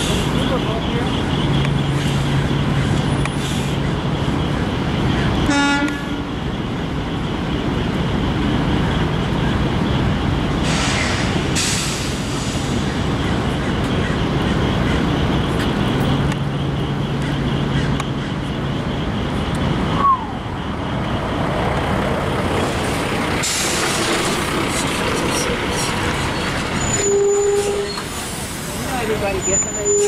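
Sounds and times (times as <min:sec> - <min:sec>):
street traffic noise: 0:00.0 - 0:30.0
vehicle horn beep: 0:05.4 - 0:06.4, 0:26.8 - 0:28.0.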